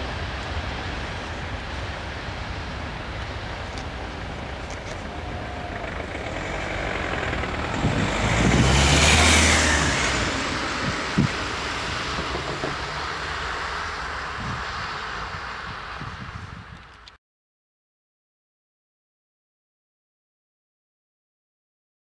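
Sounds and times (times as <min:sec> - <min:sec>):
low background rumble: 0:00.0 - 0:17.1
car driving past: 0:04.3 - 0:16.5.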